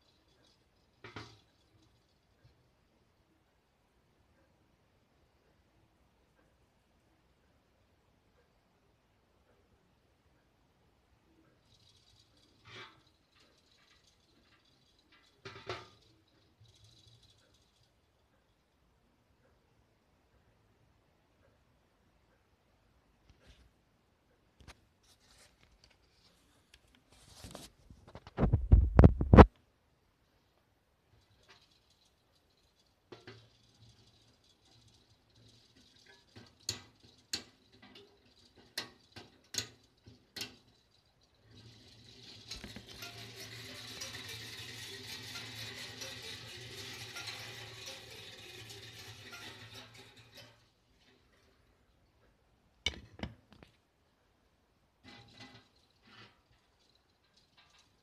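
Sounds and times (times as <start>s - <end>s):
clockwork toy whirring and rattling: 0.0s - 3.1s, 11.3s - 18.8s, 31.1s - 51.7s, 55.0s - 58.0s.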